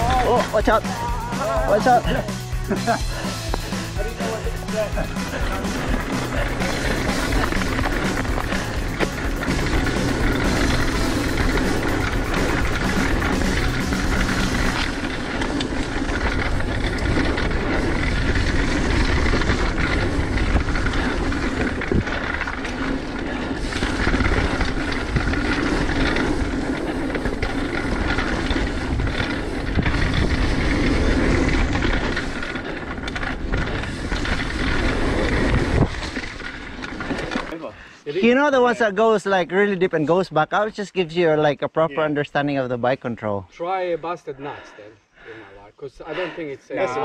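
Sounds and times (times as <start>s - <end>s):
bike knocking and rattling: 0.0s - 37.7s
bike tyres rolling over dirt: 0.0s - 43.6s
wind buffeting microphone: 3.5s - 37.5s.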